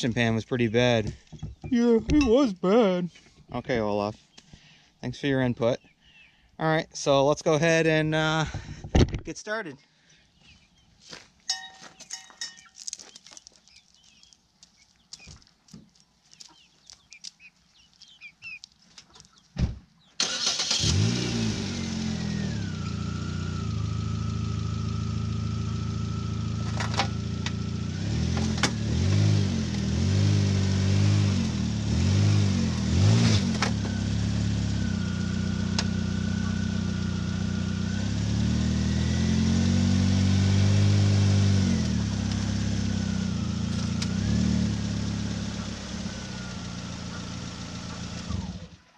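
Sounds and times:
thump: 0:19.6 - 0:19.8
car engine starting and revving: 0:20.2 - 0:48.8.

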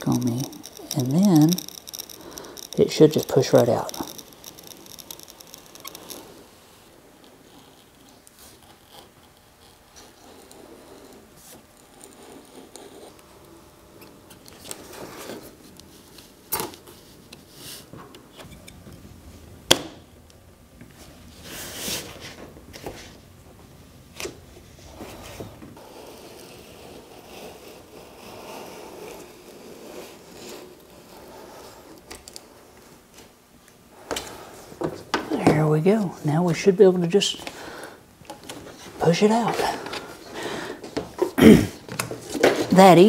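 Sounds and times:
rubber gasket rubbing and scraping: 0:00.0 - 0:06.4.

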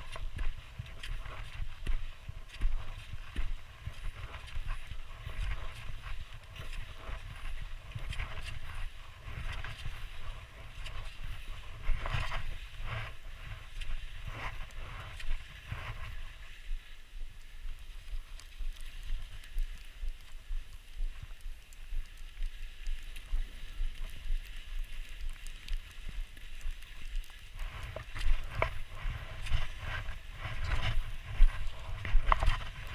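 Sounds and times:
low microphone rumble: 0:00.0 - 0:18.8, 0:27.5 - 0:32.9
skis swishing through powder snow: 0:00.0 - 0:32.9.

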